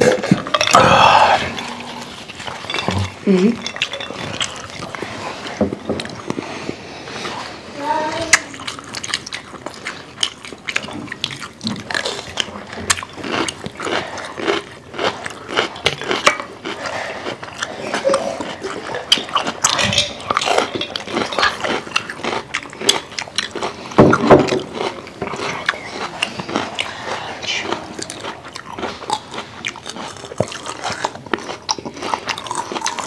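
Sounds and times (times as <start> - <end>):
wet chewing: 0.0 - 33.0
forks clicking on plates: 2.3 - 5.1, 19.1 - 22.1.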